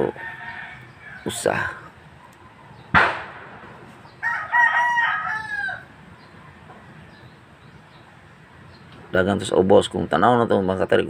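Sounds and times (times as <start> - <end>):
rooster crowing: 0.0 - 1.6, 4.1 - 6.0.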